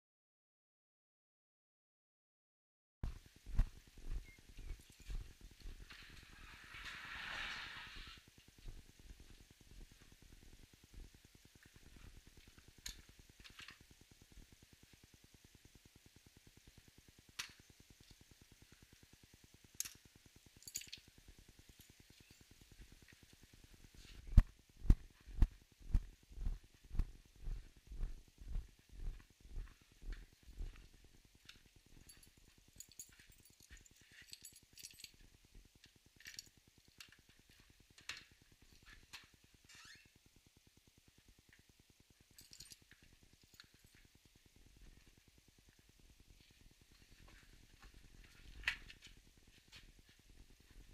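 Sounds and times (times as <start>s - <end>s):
small parts clicking and clinking: 12.4s - 13.9s, 17.4s - 18.3s, 19.8s - 23.3s, 31.4s - 39.9s, 42.3s - 44.2s
faint low pulsing: 24.1s - 31.3s.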